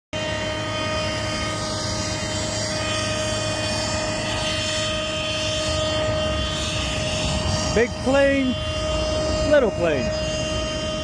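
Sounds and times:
jet engines running: 0:00.2 - 0:11.0.

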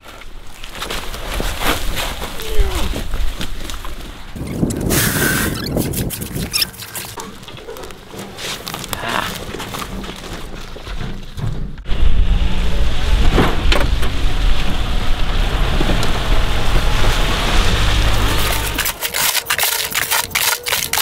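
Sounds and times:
vehicle driving over field rumbling: 0:11.8 - 0:18.8.

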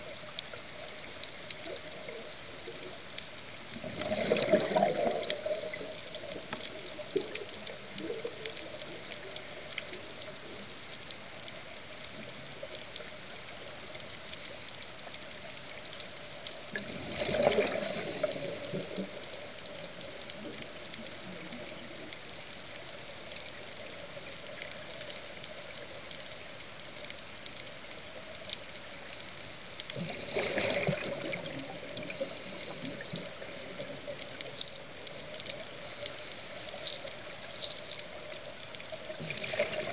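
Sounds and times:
faint clicks: 0:00.0 - 0:39.9
bubbles gurgling: 0:03.7 - 0:09.4, 0:16.7 - 0:22.2, 0:29.9 - 0:35.4, 0:38.4 - 0:39.9
underwater hiss: 0:16.7 - 0:20.3, 0:30.0 - 0:38.7.

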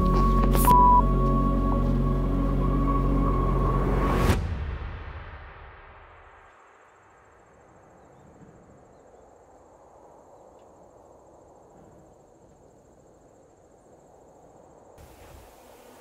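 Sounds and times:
high pulsing insect trill: 0:06.5 - 0:16.0
hiss: 0:15.0 - 0:16.0.

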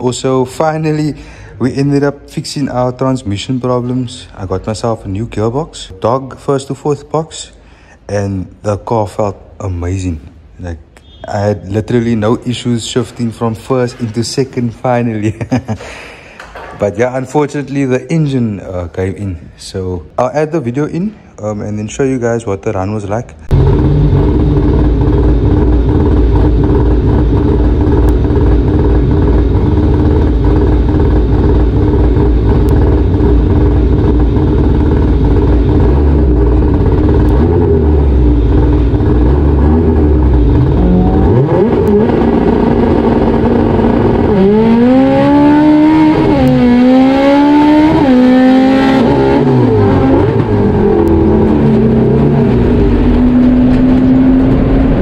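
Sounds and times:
race engine revving: 0:23.5 - 0:55.0.

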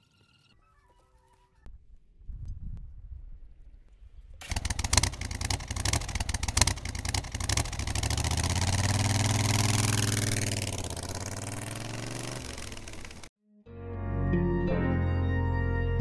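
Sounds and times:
motorcycle engine running: 0:04.4 - 0:13.3.

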